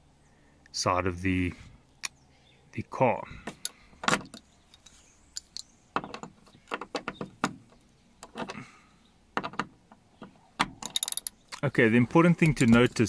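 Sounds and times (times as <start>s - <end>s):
metal hardware clicks and knocks: 3.5s - 8.7s, 9.3s - 13.0s.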